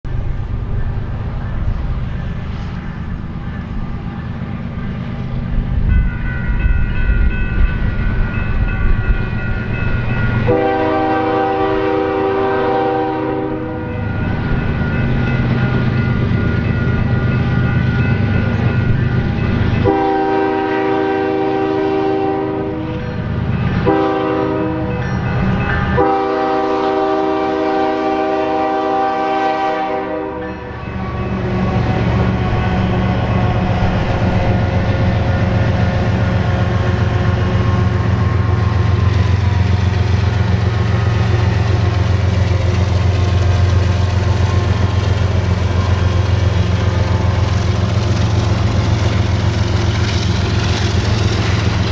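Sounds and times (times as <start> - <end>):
diesel locomotive engine passing: 0.1 - 51.9
train air horn blasts: 10.4 - 14.0, 19.8 - 23.0, 23.8 - 25.0, 25.9 - 38.5.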